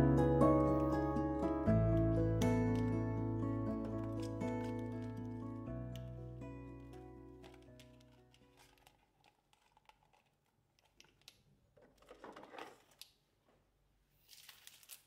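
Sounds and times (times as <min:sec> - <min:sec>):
plastic rustle: 0:03.8 - 0:06.1, 0:06.7 - 0:13.2, 0:14.2 - 0:15.0.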